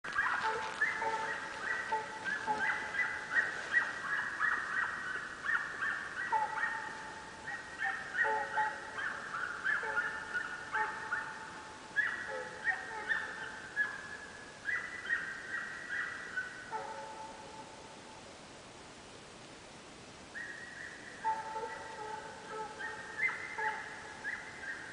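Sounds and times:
hounds baying: 0.1s - 14.0s, 21.2s - 24.5s.

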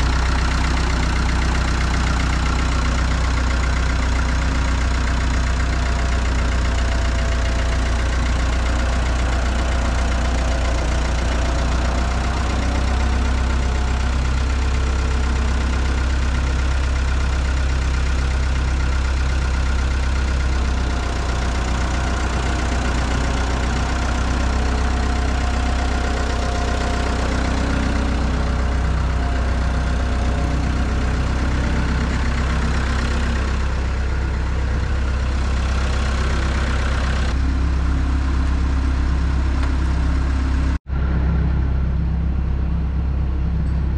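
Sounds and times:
skid-steer loader engine running: 0.0s - 43.9s.

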